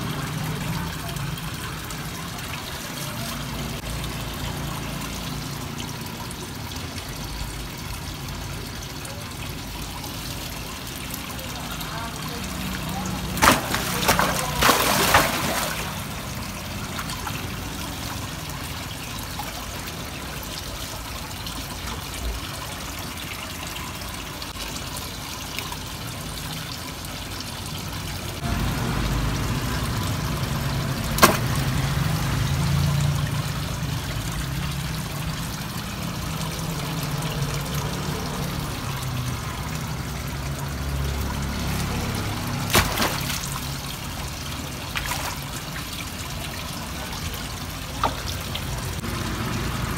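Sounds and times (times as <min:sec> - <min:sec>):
water trickling into pond: 0:00.0 - 0:49.9
loud splashes: 0:12.4 - 0:18.2, 0:30.4 - 0:33.1, 0:40.9 - 0:49.9.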